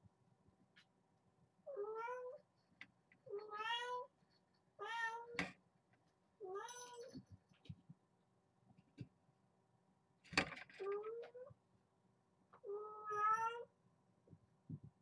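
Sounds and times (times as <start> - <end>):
kitten meowing: 12.7 - 13.6.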